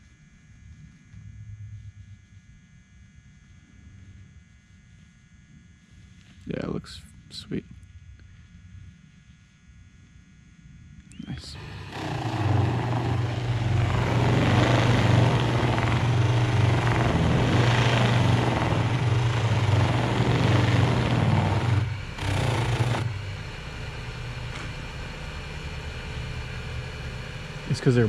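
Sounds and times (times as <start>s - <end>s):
lathe motor hum: 11.2s - 28.0s
buffing wheel whirring: 11.5s - 28.0s
buffing wheel friction rush: 11.6s - 24.8s.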